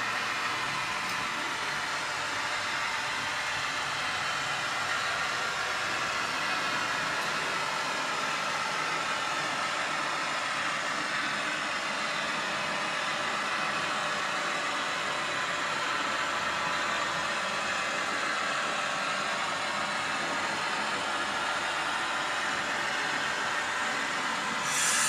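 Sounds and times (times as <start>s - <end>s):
hiss: 24.6s - 25.0s.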